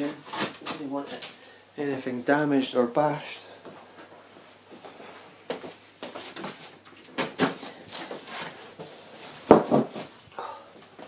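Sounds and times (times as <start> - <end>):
cardboard flaps rustling: 6.1 - 10.2.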